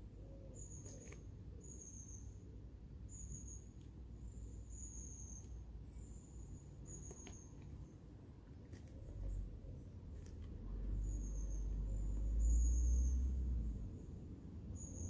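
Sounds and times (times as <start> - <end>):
faint high chirp: 0.1 - 8.0, 10.7 - 14.1, 14.7 - 15.0.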